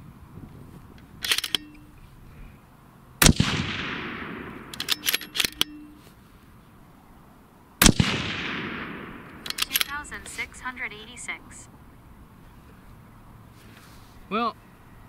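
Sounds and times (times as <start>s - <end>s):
rifle bolt clicks: 1.2s - 1.8s, 3.3s - 5.9s, 7.9s - 10.0s
rifle shot: 3.2s - 5.8s, 7.8s - 10.0s.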